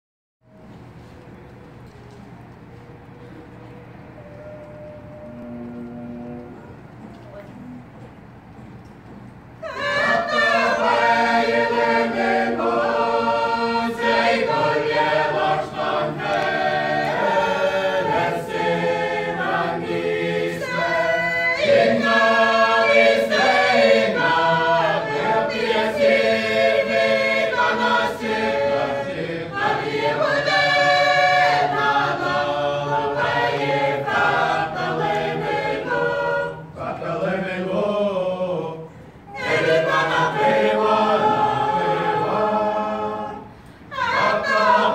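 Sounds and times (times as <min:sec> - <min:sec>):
mixed choir singing a cappella: 0:09.6 - 0:44.9.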